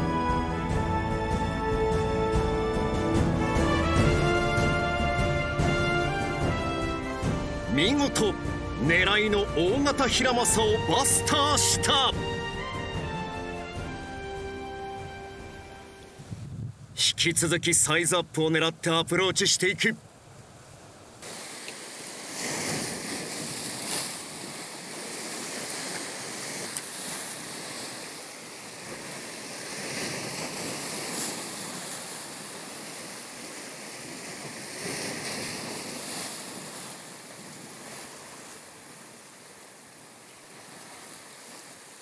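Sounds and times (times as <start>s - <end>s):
sea waves washing on shore: 1.5s - 42.0s.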